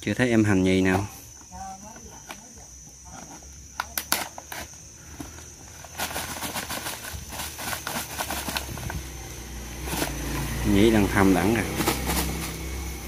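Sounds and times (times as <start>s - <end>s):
high insect trill: 0.0s - 13.0s
handling rustling and crackling: 3.1s - 10.5s, 11.6s - 12.7s.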